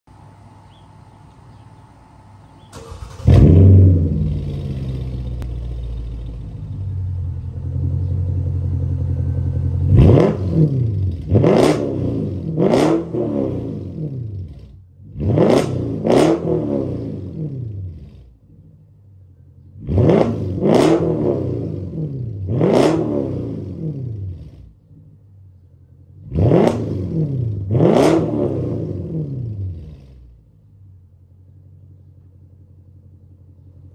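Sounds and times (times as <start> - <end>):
car engine idling: 0.1 - 11.6, 17.1 - 20.7, 23.5 - 27.8, 28.8 - 33.9
car engine starting: 2.5 - 33.9
engine revving: 2.7 - 18.4, 19.7 - 24.8, 26.2 - 30.5.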